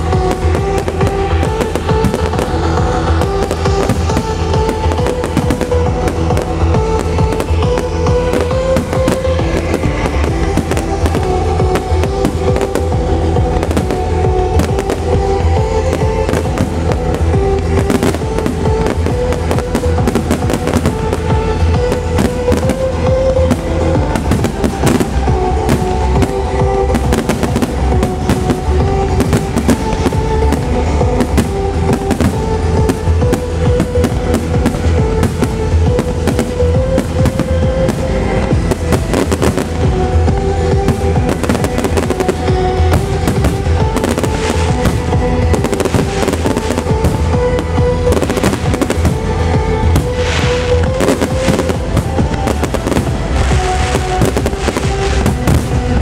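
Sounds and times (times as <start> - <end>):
loud trance music: 0.0 - 56.0.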